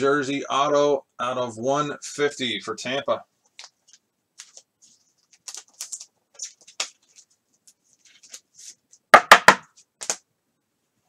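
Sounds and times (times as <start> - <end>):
cards and wrapper rustling: 3.6 - 8.8
loud wrapper crackles: 5.3 - 7.3.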